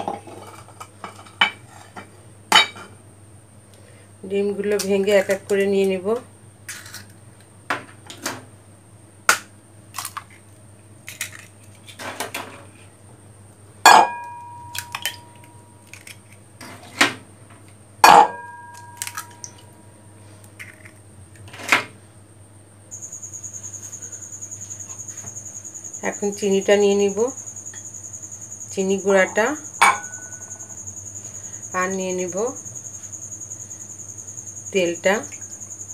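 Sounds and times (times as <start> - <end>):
cricket trilling: 12.6 - 35.9
bowl ringing: 13.9 - 15.8, 18.0 - 19.8, 29.3 - 30.7
eggs cracking against a bowl: 14.7 - 16.4.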